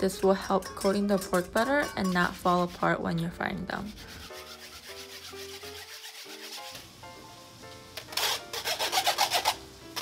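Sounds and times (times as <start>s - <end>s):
soft background music: 0.0s - 10.0s
utensil scraping wire mesh: 3.9s - 6.8s, 8.1s - 10.0s.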